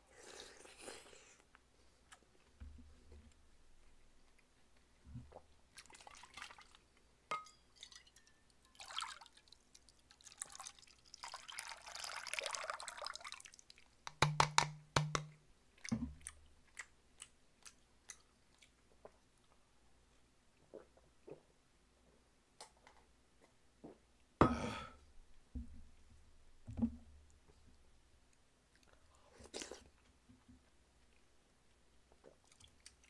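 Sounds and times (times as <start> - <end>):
liquid pouring into metal bowl: 5.8 - 13.6.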